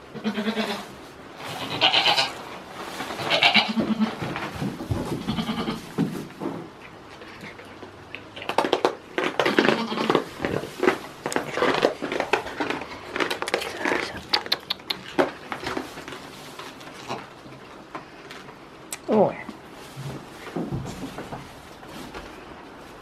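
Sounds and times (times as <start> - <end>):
goats bleating: 0.1 - 0.9, 1.5 - 2.4, 3.2 - 4.2, 5.2 - 5.9
rustling in straw: 0.1 - 6.4, 19.6 - 23.0.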